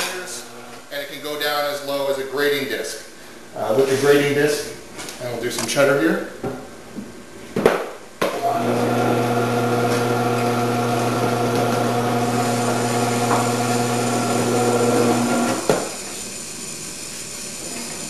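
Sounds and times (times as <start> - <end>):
vegetable cutter motor humming: 8.4 - 18.0.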